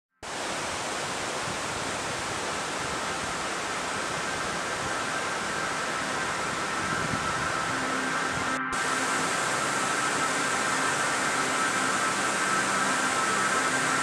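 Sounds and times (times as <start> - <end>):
outdoor ambience hiss: 0.2 - 14.0
faint high steady tones: 3.2 - 14.0.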